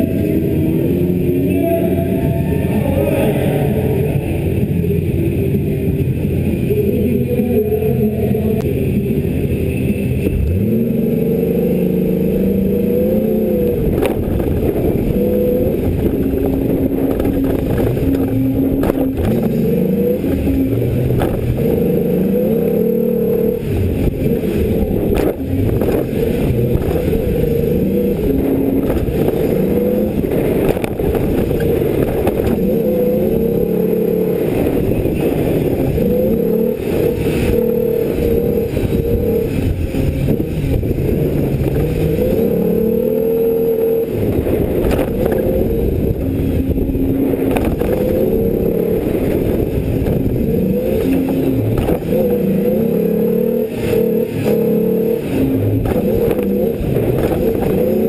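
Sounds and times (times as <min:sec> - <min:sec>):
truck engine revving: 0:00.0 - 0:58.0
truck knocks and clatter: 0:55.8 - 0:58.0.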